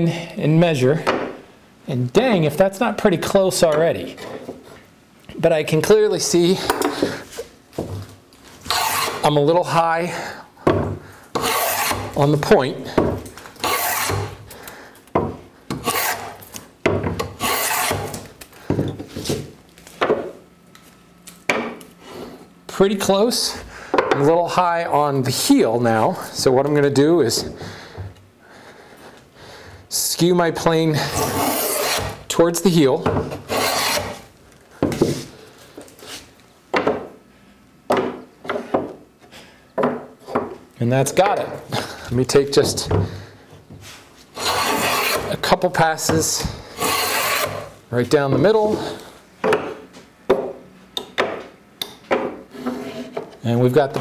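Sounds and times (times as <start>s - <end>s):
hand plane shaving wood: 8.7s - 9.3s, 11.4s - 12.2s, 13.6s - 14.4s, 15.8s - 16.4s, 17.4s - 18.2s, 31.0s - 32.2s, 33.5s - 34.2s, 44.4s - 45.4s, 46.2s - 47.7s
tools knocking on wooden bench: 37.9s - 39.0s, 39.8s - 40.6s, 49.4s - 50.6s, 52.1s - 52.4s.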